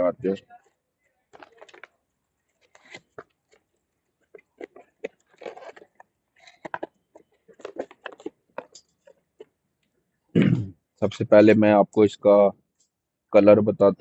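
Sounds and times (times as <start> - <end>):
cardboard and plastic crinkling: 1.3 - 9.5.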